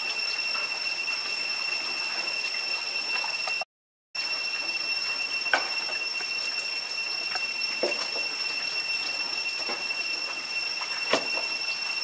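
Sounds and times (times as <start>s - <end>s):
insects droning: 0.0s - 3.6s, 4.2s - 12.0s
rain hissing: 4.2s - 12.0s.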